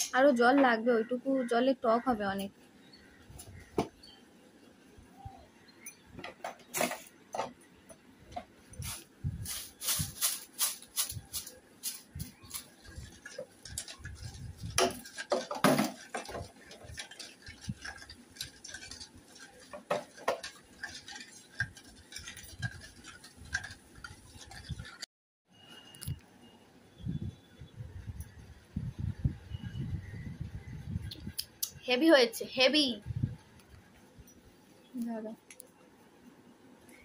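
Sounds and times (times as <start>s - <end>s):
metal spoon scraping steel bowl: 12.3s - 25.0s.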